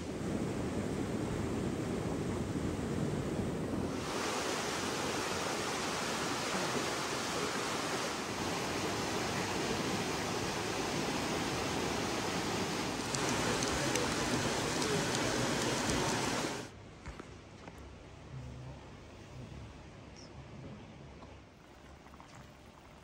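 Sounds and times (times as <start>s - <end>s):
river water rushing: 3.9s - 16.7s
faint low hum: 12.4s - 23.0s.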